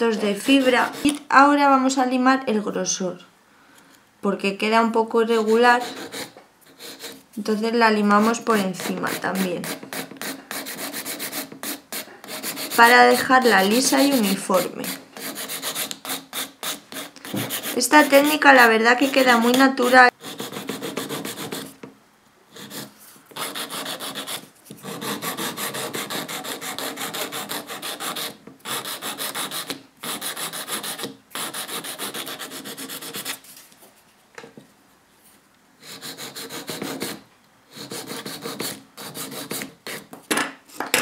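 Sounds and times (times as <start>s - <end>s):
nail file rasping: 8.2s - 18.4s, 20.2s - 21.7s, 22.6s - 33.4s, 35.8s - 37.2s, 37.8s - 40.0s.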